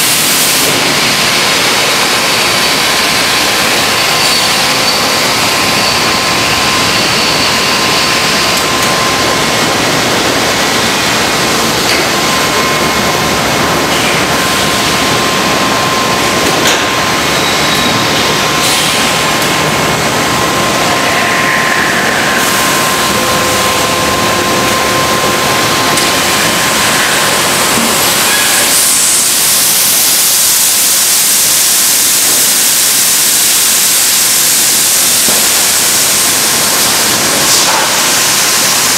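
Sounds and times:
machine hiss: 0:00.0 - 0:38.9
faint machine whine: 0:02.4 - 0:28.9.

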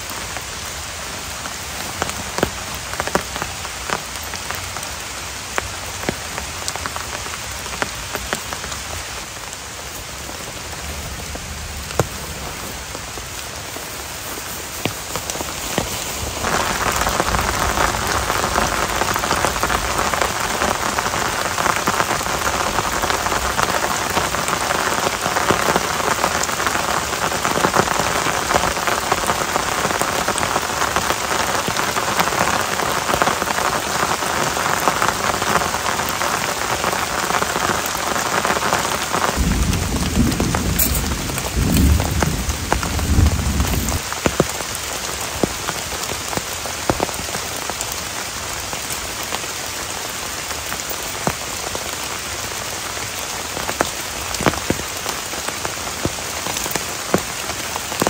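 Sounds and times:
heavy rain in forest: 0:00.0 - 0:58.0.

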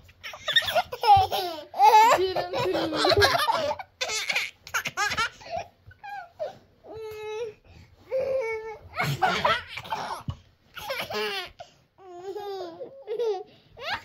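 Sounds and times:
toddler laughing: 0:00.2 - 0:06.3, 0:08.9 - 0:14.0.

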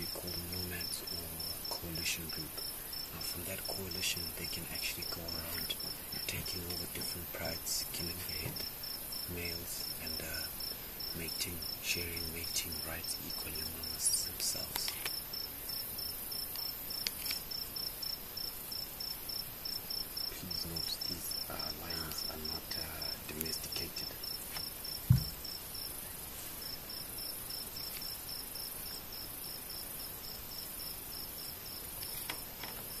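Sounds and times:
night insects chirping: 0:00.0 - 0:33.0
faint low voices murmuring: 0:20.3 - 0:24.1
loud low thump: 0:25.1 - 0:25.4.

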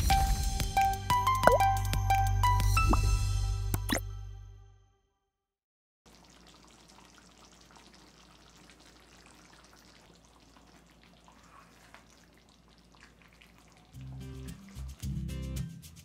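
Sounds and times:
oil sizzling in a pan: 0:06.1 - 0:15.2.

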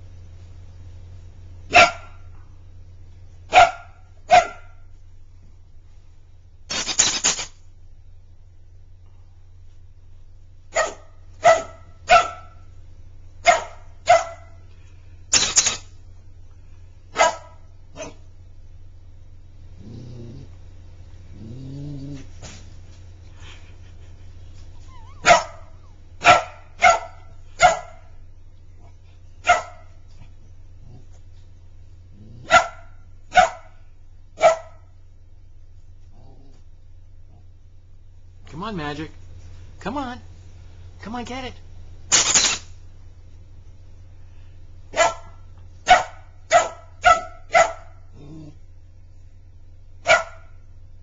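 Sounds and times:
puppy barking: 0:01.7 - 0:02.3, 0:03.5 - 0:04.9, 0:10.7 - 0:12.7, 0:13.4 - 0:14.6, 0:17.1 - 0:18.3, 0:24.9 - 0:28.2, 0:29.4 - 0:30.0, 0:32.4 - 0:33.8, 0:34.4 - 0:34.9, 0:44.9 - 0:48.1, 0:50.0 - 0:50.6.

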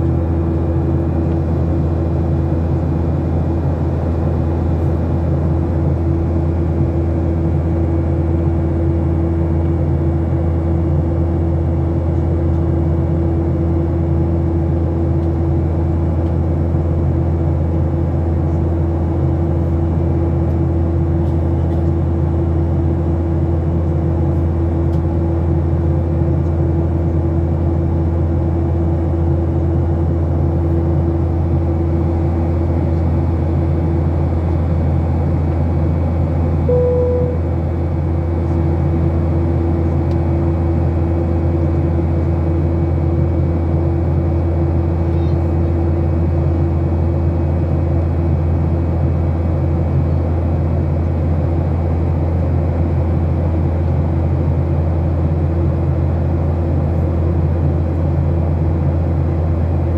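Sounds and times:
airplane cabin drone: 0:00.0 - 0:59.9
short tone: 0:36.7 - 0:37.6.

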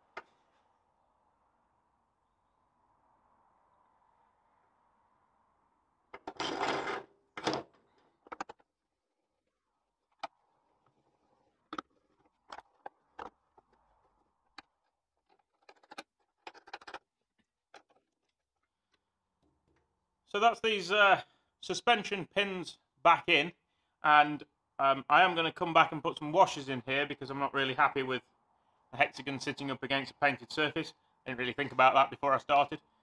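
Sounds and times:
metal clicks and knocks: 0:07.4 - 0:08.7, 0:11.7 - 0:17.1.

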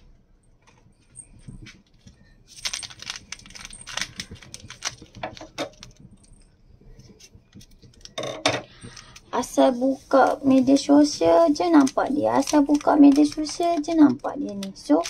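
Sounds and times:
kitchen items clicking and rattling: 0:01.2 - 0:06.4, 0:11.0 - 0:15.0.

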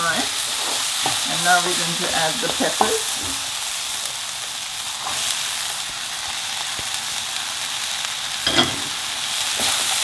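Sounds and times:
vegetables sizzling in hot oil: 0:00.0 - 0:10.0
peppers clattering into pan: 0:08.4 - 0:10.0.

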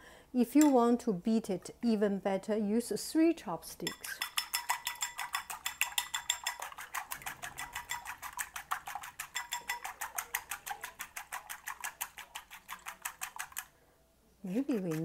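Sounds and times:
chopsticks beating egg in bowl: 0:03.9 - 0:13.7, 0:14.5 - 0:15.0.

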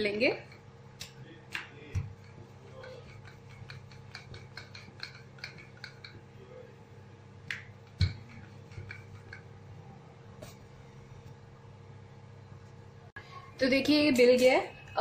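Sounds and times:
rolling pin clicking on stone: 0:01.0 - 0:06.2.

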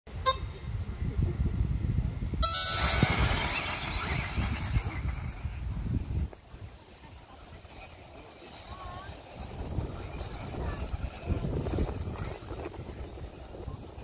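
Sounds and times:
low buffeting rumble: 0:00.1 - 0:14.0
electric model buggies accelerating: 0:02.4 - 0:06.2.

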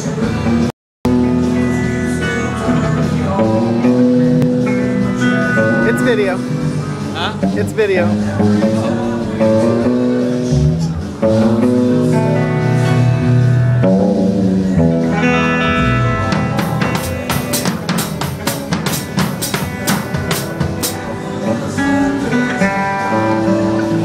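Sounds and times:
guitar playing held chords: 0:00.0 - 0:24.0
drum kit hits: 0:00.5 - 0:10.0, 0:13.6 - 0:21.2.

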